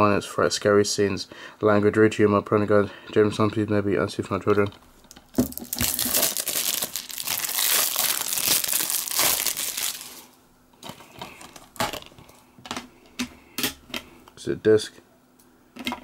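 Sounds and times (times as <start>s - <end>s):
plastic shrink-wrap crinkling: 5.1s - 12.3s.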